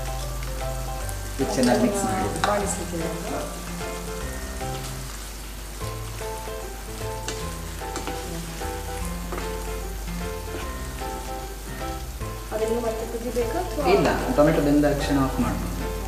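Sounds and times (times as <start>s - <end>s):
background music with held notes: 0.0s - 16.0s
pickle sizzling in frying pan: 0.0s - 16.0s
spatula scraping pan: 7.2s - 9.6s.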